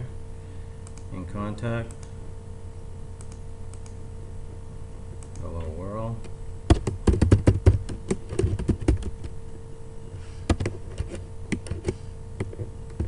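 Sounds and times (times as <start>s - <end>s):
faint steady hum: 0.0s - 13.0s
computer keyboard typing: 6.7s - 9.3s, 10.5s - 13.0s.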